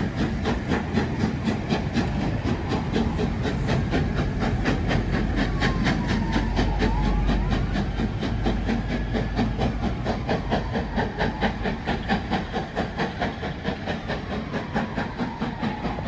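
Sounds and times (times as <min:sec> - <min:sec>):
steam locomotive exhaust chuffs: 0:00.0 - 0:16.0.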